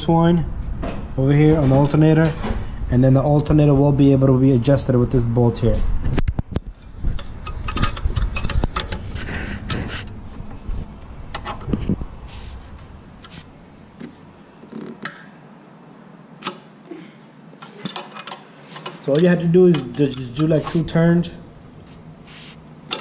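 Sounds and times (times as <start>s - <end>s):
low rubbing rumble: 0.0s - 13.9s.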